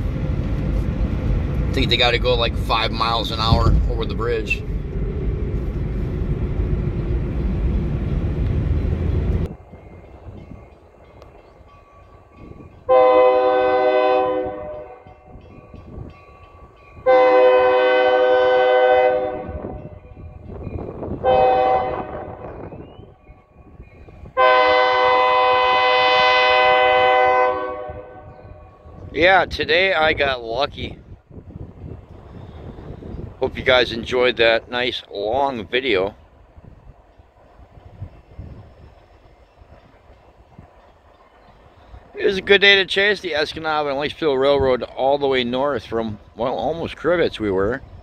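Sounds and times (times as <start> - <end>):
loud steady rumble: 0.0 - 9.5
locomotive horn blasts: 12.9 - 15.2, 17.0 - 20.1, 21.2 - 22.6, 24.4 - 28.7.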